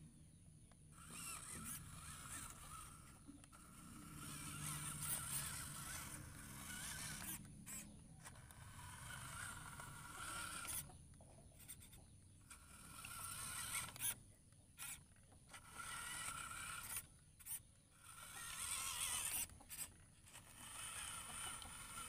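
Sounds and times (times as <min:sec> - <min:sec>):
electric motor whining: 0:00.9 - 0:10.9, 0:11.6 - 0:14.2, 0:14.8 - 0:22.0.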